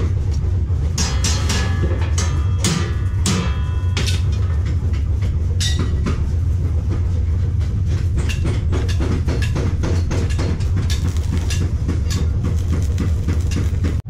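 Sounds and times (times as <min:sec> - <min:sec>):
welding arc crackling: 0:10.6 - 0:14.0
welding machine humming: 0:10.6 - 0:14.0.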